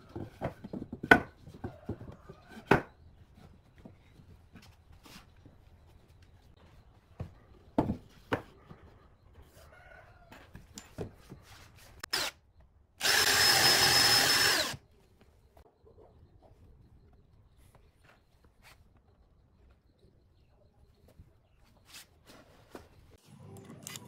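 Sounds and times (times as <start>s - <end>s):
cordless drill drilling into wood: 12.1s - 12.4s, 13.0s - 14.8s.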